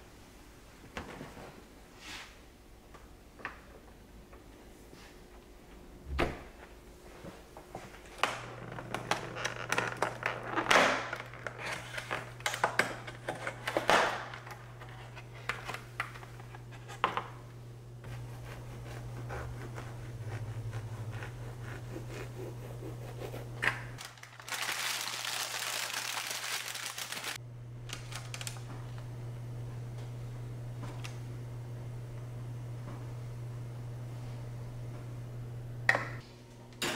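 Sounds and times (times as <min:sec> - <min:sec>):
low steady hum: 0:02.5 - 0:24.1, 0:27.4 - 0:36.9
serrated knife cutting croissant: 0:18.1 - 0:24.0
plastic clamshell crinkling: 0:24.0 - 0:27.4.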